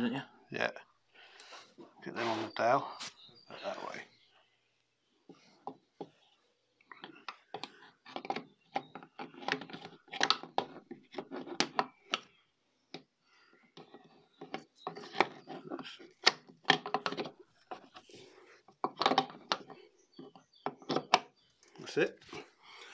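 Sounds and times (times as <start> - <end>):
metal clicks knocks and scrapes: 6.9 - 12.3, 13.7 - 21.8.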